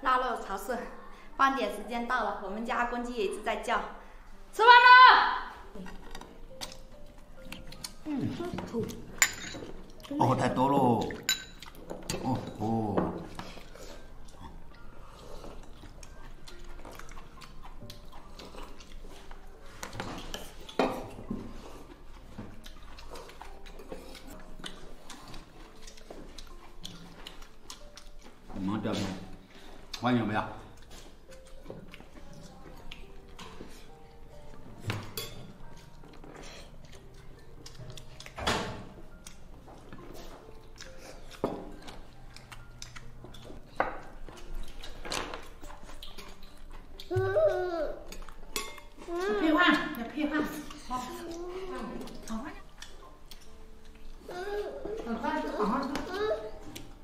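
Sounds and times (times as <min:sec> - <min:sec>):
spoon clinking against metal bowls: 0:09.1 - 0:09.9, 0:11.0 - 0:13.2, 0:34.9 - 0:35.9, 0:48.2 - 0:49.9
tableware clicks: 0:09.2 - 0:09.8.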